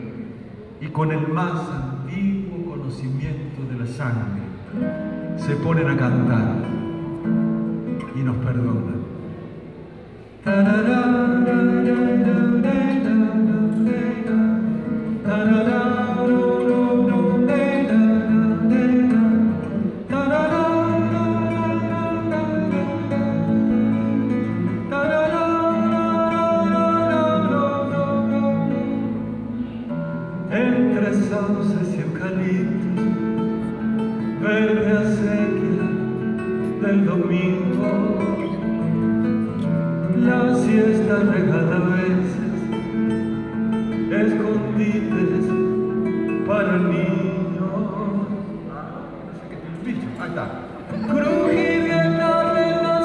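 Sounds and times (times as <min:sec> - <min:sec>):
acoustic guitar: 0:00.0 - 0:53.0
man singing: 0:10.4 - 0:48.7, 0:50.8 - 0:53.0.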